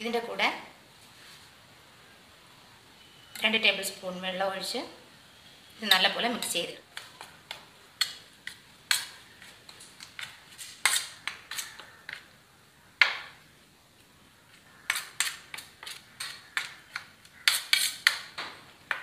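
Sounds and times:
metal spoon scraping steel plate: 17.4s - 18.2s.

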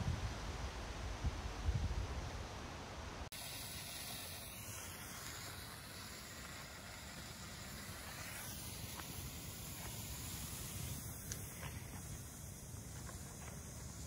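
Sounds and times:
firework hissing: 3.3s - 14.0s.

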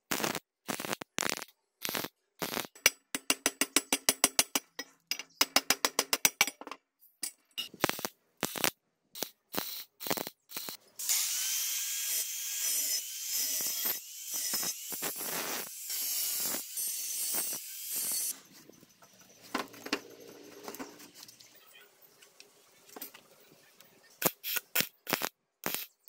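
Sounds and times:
welder crackling bursts: 0.0s - 2.8s, 7.8s - 18.3s, 24.2s - 26.0s
angle grinder grinding metal: 8.6s - 18.4s.

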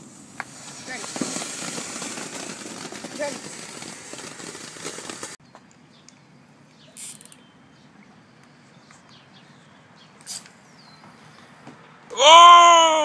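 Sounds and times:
thin bird chirps: 5.4s - 11.6s.

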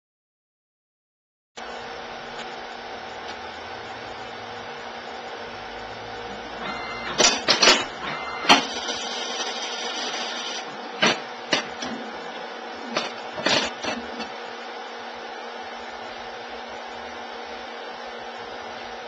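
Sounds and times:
steady fan hum: 1.6s - 19.0s
mechanical clicks and clunks: 6.6s - 9.0s.

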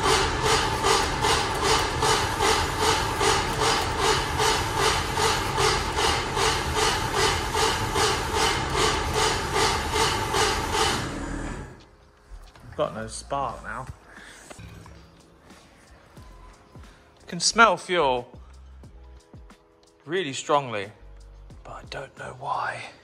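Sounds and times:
engine cranking on starter motor: 0.0s - 11.8s.

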